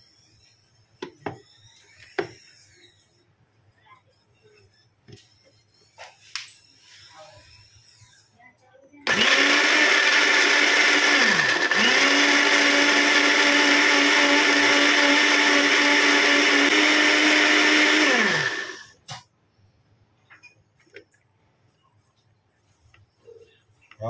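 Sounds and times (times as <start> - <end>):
blender running: 9.1 - 18.9.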